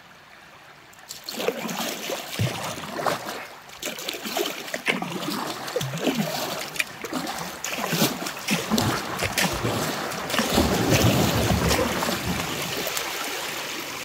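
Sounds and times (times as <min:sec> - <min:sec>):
paddle splashes: 0:01.0 - 0:14.0
water rushing over dam: 0:01.0 - 0:14.0.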